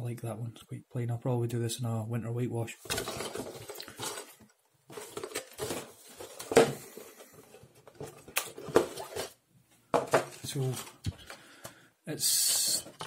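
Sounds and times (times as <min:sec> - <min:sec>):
cardboard box rustling: 0:02.8 - 0:09.4.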